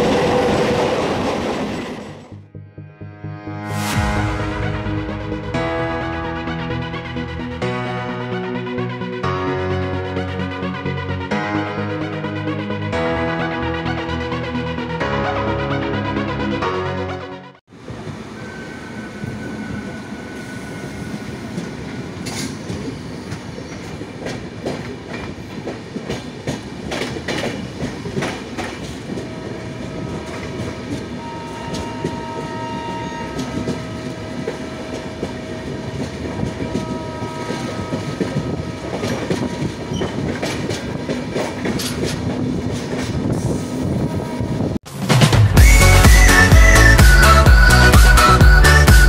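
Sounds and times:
train rumble: 0.0 - 2.4, 17.7 - 47.4
wheels clacking over rail joints: 21.5 - 43.5.

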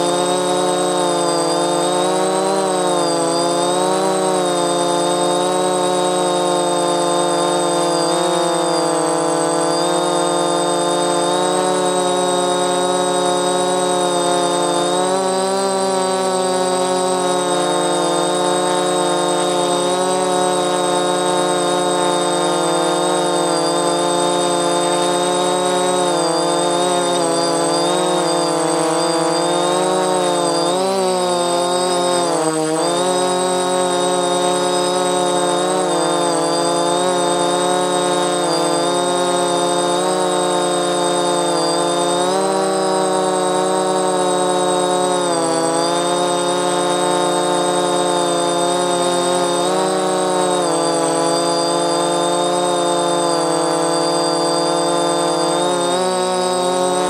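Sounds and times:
drone propellers buzzing: 0.0 - 57.0.

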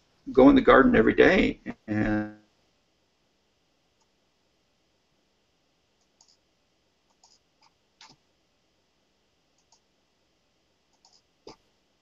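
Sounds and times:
faint clicks: 4.0 - 4.2, 6.0 - 6.4, 7.1 - 8.2, 9.5 - 9.9, 10.9 - 11.6.

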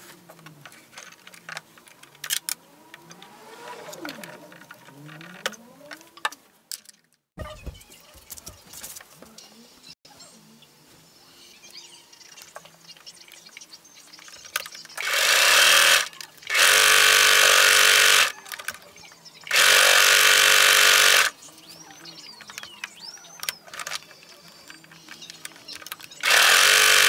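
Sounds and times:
sewing machine stitching: 15.0 - 18.8, 19.5 - 21.3, 26.2 - 27.0.

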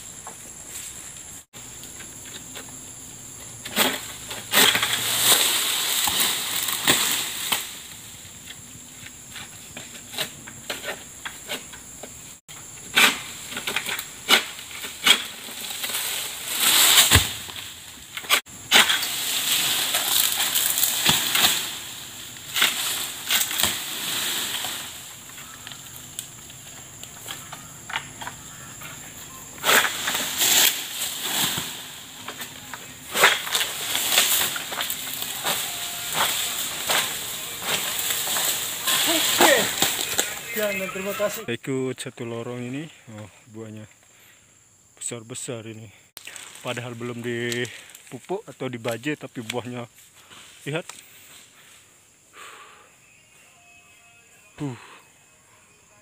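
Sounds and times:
fronds rustling: 0.0 - 41.5, 46.2 - 52.6
high insect hum: 0.0 - 56.0
sickle cracking and scraping: 3.4 - 29.0, 29.6 - 41.3, 46.2 - 51.5.

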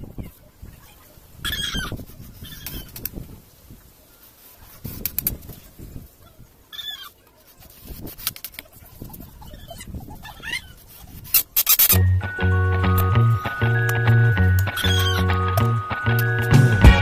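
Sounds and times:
high wavering calls: 11.7 - 17.0
loud background music: 12.0 - 17.0.

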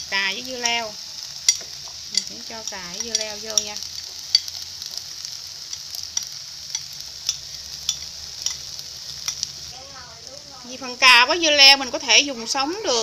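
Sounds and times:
rice sizzling in a pan: 0.0 - 13.0
utensil clicking against pan: 0.6 - 5.0, 5.7 - 9.6.

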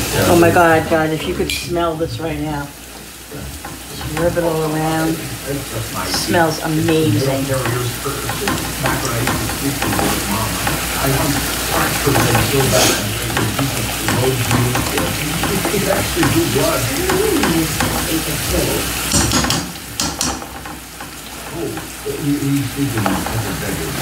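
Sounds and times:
fruit sizzling in a skillet: 0.0 - 24.0
fork scraping a pan: 5.0 - 23.8.

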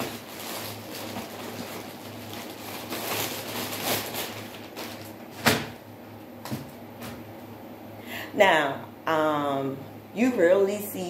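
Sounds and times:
plastic bag rustling and crinkling: 0.0 - 5.8.

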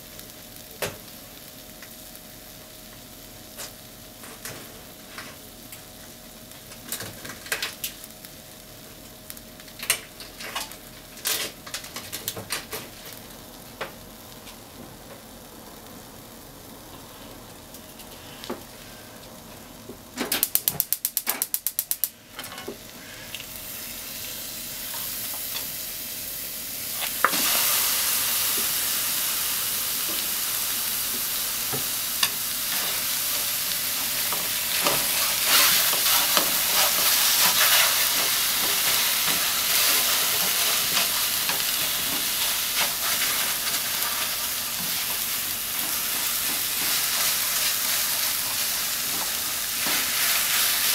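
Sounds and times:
tofu sizzling in a hot pan: 0.0 - 11.6, 22.8 - 50.9
food frying in a pan: 0.0 - 50.9.

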